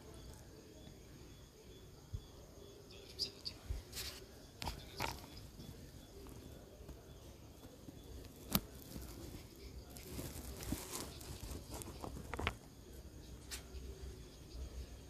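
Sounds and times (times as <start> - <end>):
dog rustling against phone: 7.6 - 12.7.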